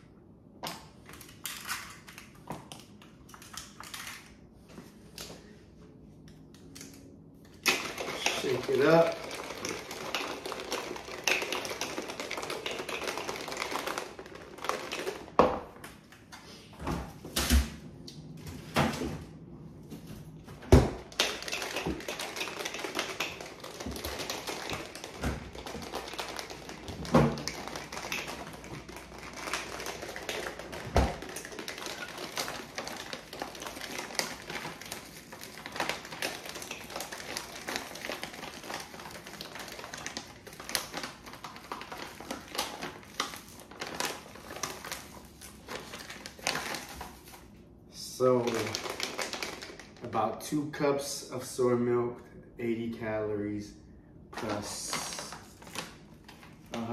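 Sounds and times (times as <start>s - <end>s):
ice rattling in shaker bottle: 7.6s - 15.5s, 20.8s - 47.4s, 48.0s - 50.4s.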